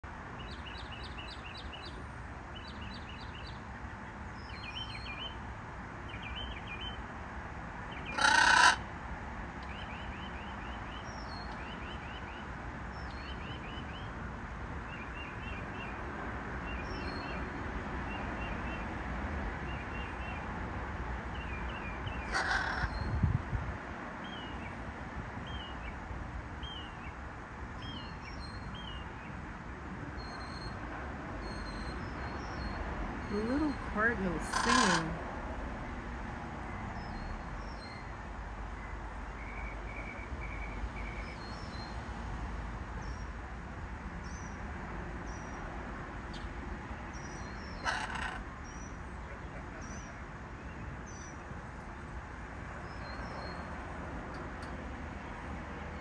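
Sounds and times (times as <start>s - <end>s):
songbirds singing: 0.0s - 7.2s, 7.8s - 8.9s, 9.5s - 23.4s, 24.1s - 36.0s, 36.6s - 42.2s, 42.9s - 43.4s, 44.2s - 56.0s
loud harsh call: 8.1s - 8.8s.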